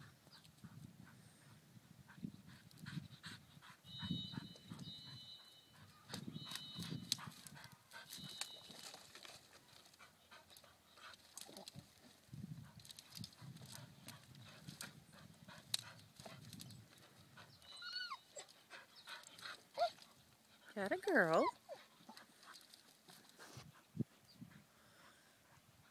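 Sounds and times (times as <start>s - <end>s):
high thin whistle-like tone: 3.9s - 7.2s.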